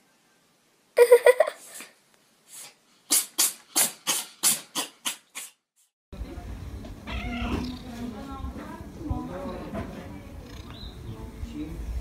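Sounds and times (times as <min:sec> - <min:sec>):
cat sneezing: 0:02.5 - 0:05.6.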